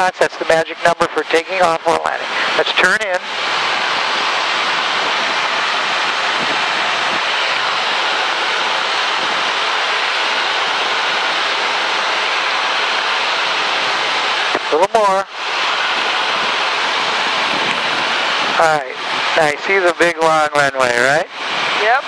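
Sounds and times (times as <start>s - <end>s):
light aircraft cabin noise: 0.0s - 13.1s, 17.4s - 22.0s.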